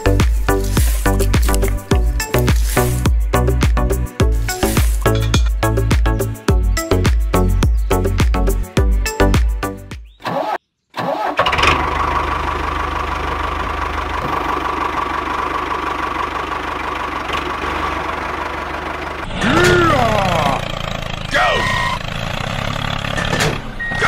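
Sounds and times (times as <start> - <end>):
engine chugging with whine: 11.4 - 24.0.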